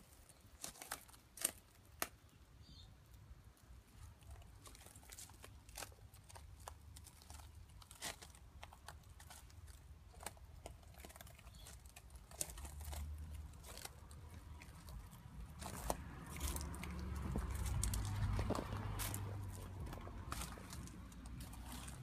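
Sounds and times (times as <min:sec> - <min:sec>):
footsteps crunching on gravel: 0:11.6 - 0:22.0.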